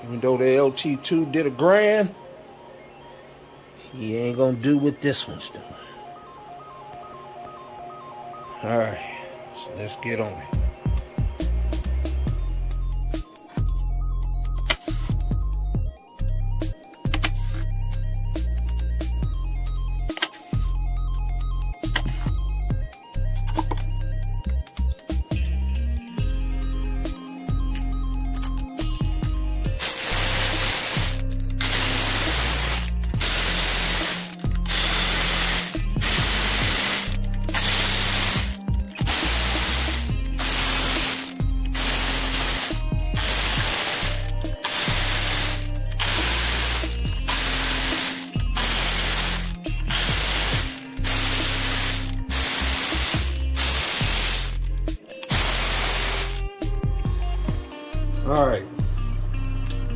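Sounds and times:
electronic music with deep bass: 8.6s - 58.5s
loud bursts of hiss: 29.8s - 54.6s, 55.3s - 56.4s.

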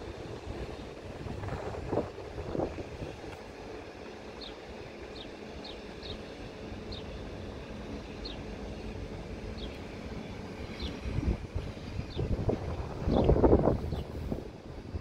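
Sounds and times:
distant train approaching: 0.0s - 15.0s
low wind rumble: 0.0s - 15.0s.

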